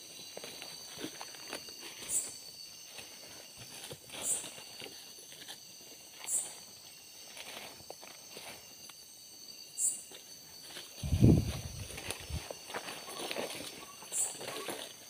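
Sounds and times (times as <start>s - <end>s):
night insects buzzing: 0.0s - 15.0s
footsteps crackling through undergrowth: 10.3s - 15.0s.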